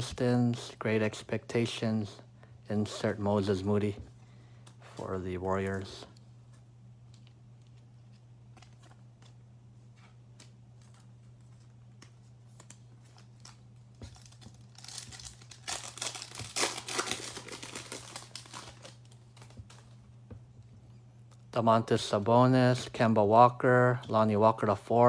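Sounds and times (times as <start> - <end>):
steady low hum: 0.0 - 25.0
foil wrapper crinkling: 12.5 - 20.0
foil wrapper tearing: 13.2 - 19.8.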